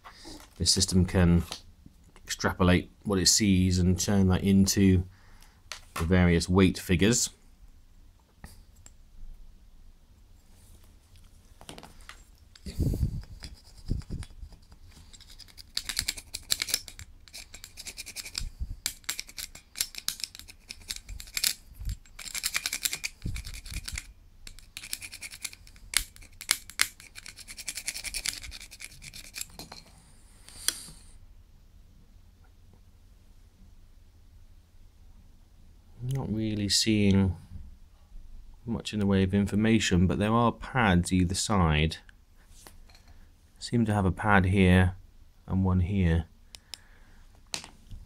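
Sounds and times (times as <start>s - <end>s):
screwdriver scraping metal bar: 13.3s - 29.8s.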